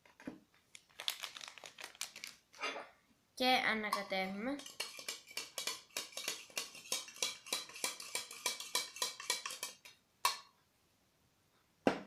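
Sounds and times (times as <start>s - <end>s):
spoon clinking against cup: 3.9s - 10.4s.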